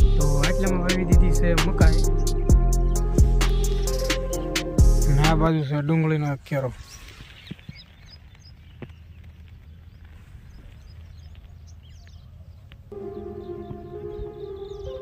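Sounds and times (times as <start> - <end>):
background music: 0.0 - 5.5, 12.9 - 15.0
birds chirping: 0.0 - 15.0
soft footstep-like clicks: 7.5 - 12.9.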